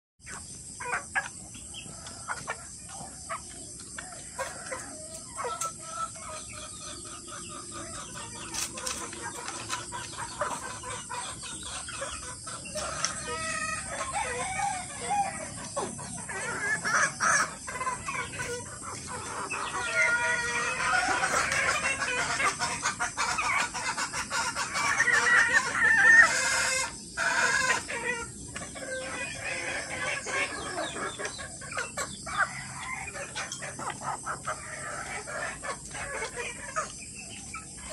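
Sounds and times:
chickens clucking: 0.2 - 37.9
rooster crowing: 13.1 - 15.6.

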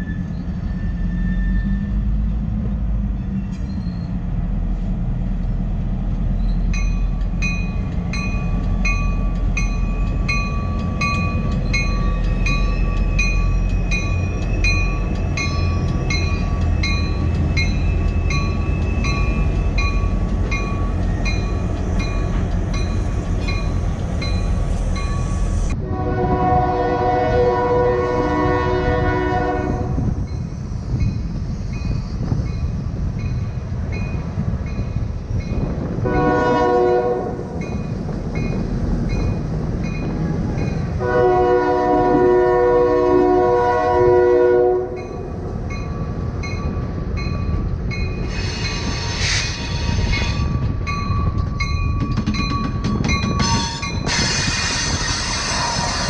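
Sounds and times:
moving train rumble: 0.0 - 56.0
locomotive air horn: 25.8 - 30.0, 36.0 - 37.4, 41.0 - 45.0.

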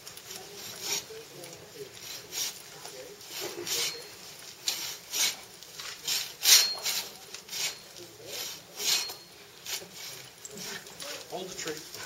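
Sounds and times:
bow saw rasping through wood: 4.7 - 5.4, 6.0 - 10.1.

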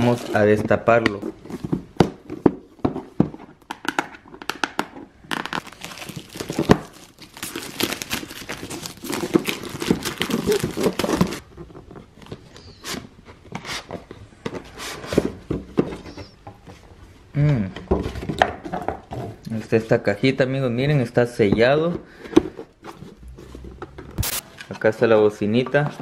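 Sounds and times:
plastic wrap crackling: 5.3 - 11.5.

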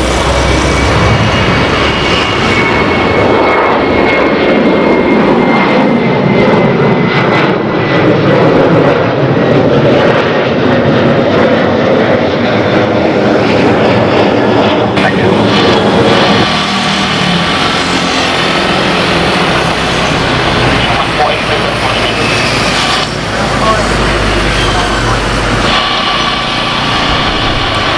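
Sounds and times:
jet accelerating on takeoff roll: 0.0 - 27.9
jet engines at takeoff power: 0.0 - 27.9.

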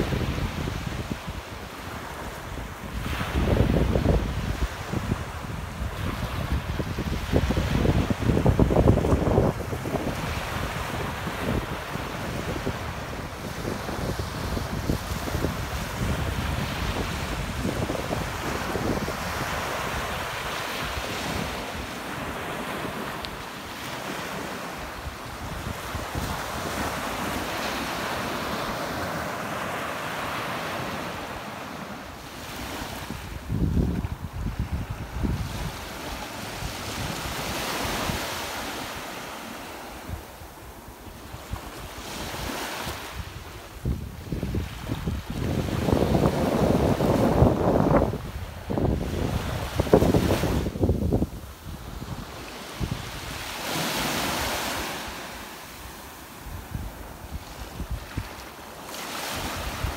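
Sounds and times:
wind buffeting microphone: 0.0 - 23.1, 24.0 - 29.0, 32.4 - 38.9, 41.2 - 55.2, 56.4 - 58.4
small waves breaking on beach: 0.0 - 59.9.

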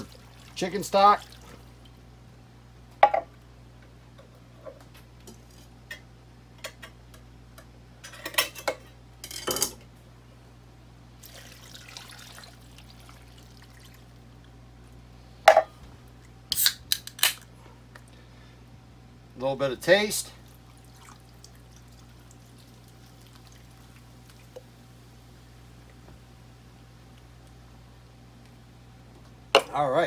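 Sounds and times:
liquid pouring into pot: 0.0 - 1.7, 11.2 - 14.2, 20.5 - 24.7.

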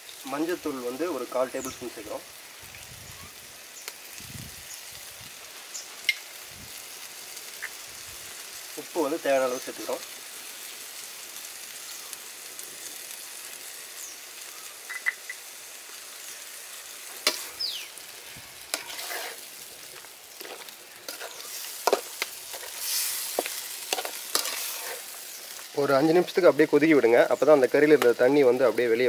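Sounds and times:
chicken sizzling in a metal pot: 0.0 - 29.0
metal spatula scraping: 18.6 - 19.6, 20.4 - 25.2.

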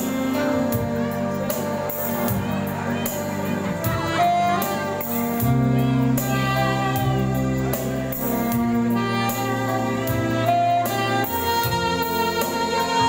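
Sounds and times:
guitar: 0.0 - 13.0
saxophone: 0.0 - 13.0
steady cymbal beat: 0.0 - 13.0
person singing: 2.3 - 8.3.

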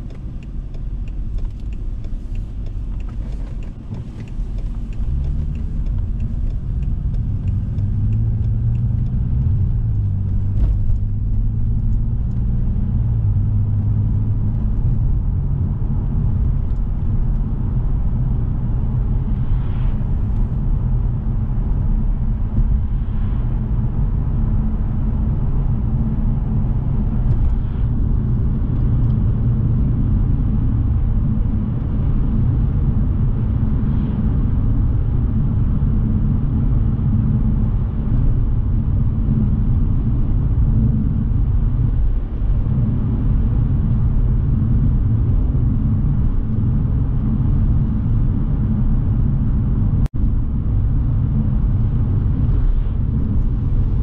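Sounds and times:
car engine accelerating: 0.0 - 54.0
tyre road noise: 0.0 - 54.0.

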